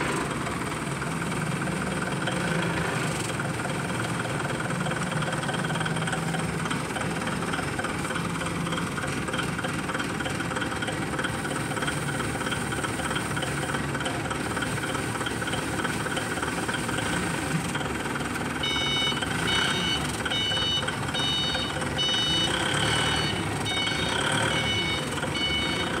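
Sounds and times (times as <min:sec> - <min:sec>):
forklift engine running: 0:00.0 - 0:26.0
reversing alarm beeping: 0:17.8 - 0:26.0.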